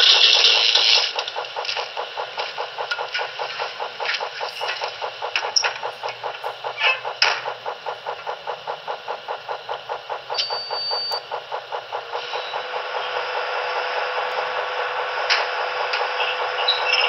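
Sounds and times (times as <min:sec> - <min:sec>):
sharp clicks: 0:00.0 - 0:12.4
model locomotive mechanical pulsing: 0:00.0 - 0:17.0.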